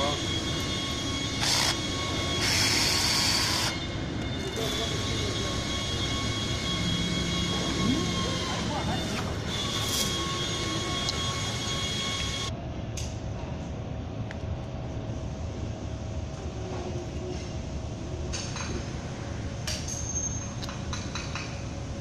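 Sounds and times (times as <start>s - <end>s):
low workshop hum: 0.0s - 22.0s.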